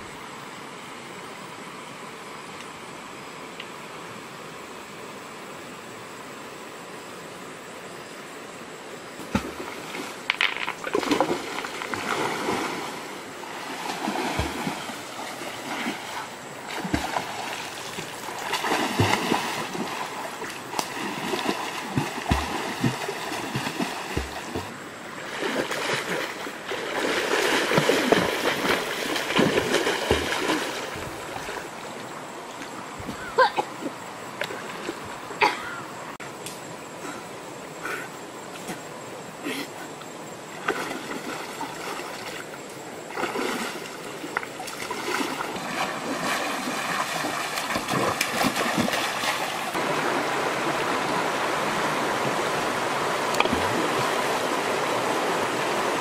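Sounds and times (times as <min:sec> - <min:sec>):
person splashing in river: 0:09.2 - 0:31.9, 0:40.5 - 0:56.0.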